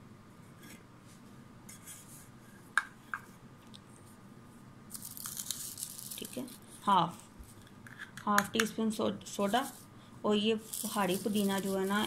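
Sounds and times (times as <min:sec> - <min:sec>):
scratchy rustle: 0:10.6 - 0:12.0.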